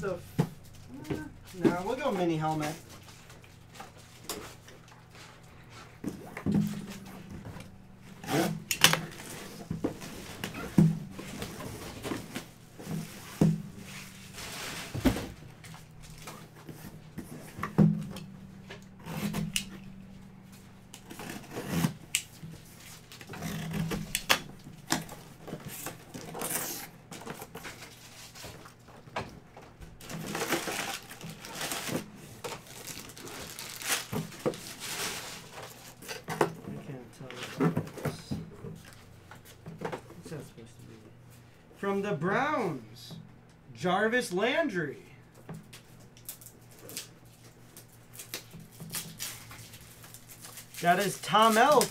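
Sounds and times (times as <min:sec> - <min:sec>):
cardboard flaps rustling: 0:05.8 - 0:18.4, 0:30.0 - 0:36.0
plastic wrap tearing and crinkling: 0:30.0 - 0:36.0, 0:46.2 - 0:51.9.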